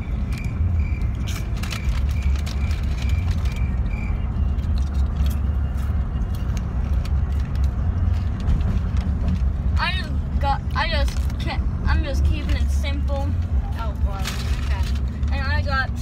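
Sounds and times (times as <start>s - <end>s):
car cabin rumble: 0.0s - 16.0s
chewing crunchy snacks: 0.2s - 9.0s.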